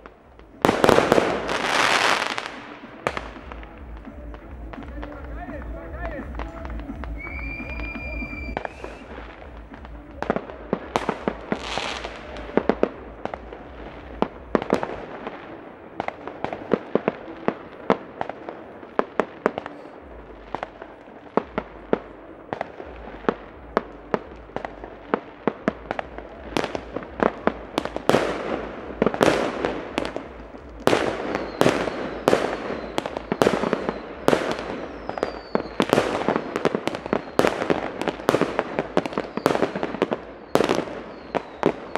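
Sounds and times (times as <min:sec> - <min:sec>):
fireworks bangs and crackling: 0:00.0 - 0:41.9
firework falling whistle: 0:06.3 - 0:09.5, 0:30.9 - 0:38.0.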